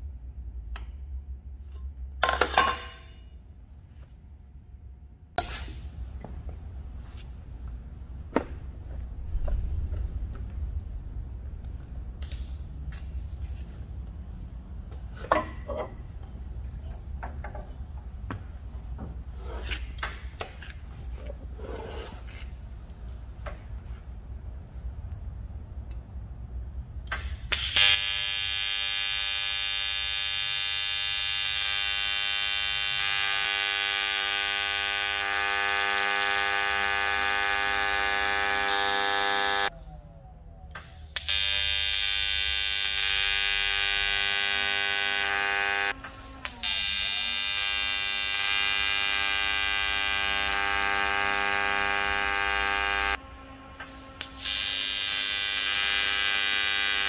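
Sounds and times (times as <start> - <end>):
welding arc buzzing: 27.1 - 39.7, 41.1 - 57.0.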